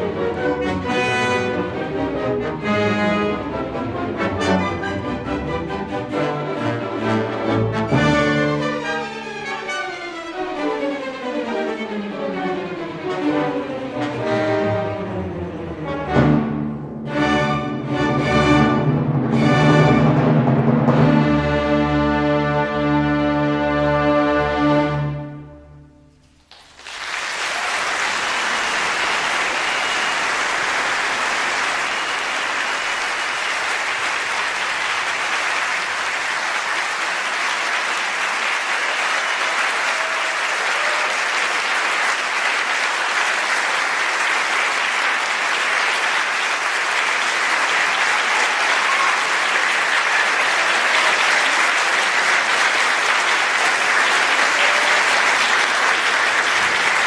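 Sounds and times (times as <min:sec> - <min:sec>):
audience applauding: 0:26.3 - 0:57.0.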